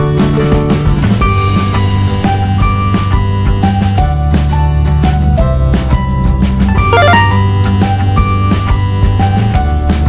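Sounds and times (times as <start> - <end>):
music with bass and beat: 6.9 - 7.5.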